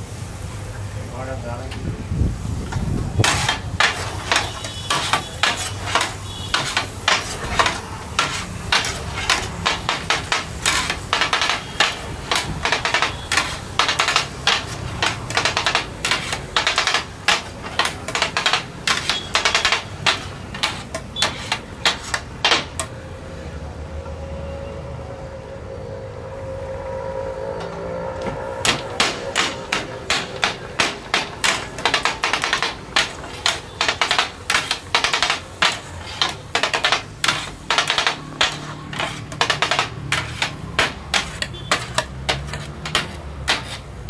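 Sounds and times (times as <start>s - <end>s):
metal spatulas clattering on griddle: 3.2s - 22.9s, 28.7s - 44.0s.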